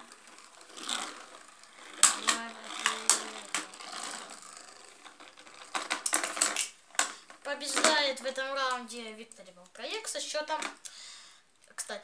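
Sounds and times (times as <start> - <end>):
spinning tops clacking: 0.0 - 8.2
spinning tops whirring: 0.0 - 8.2.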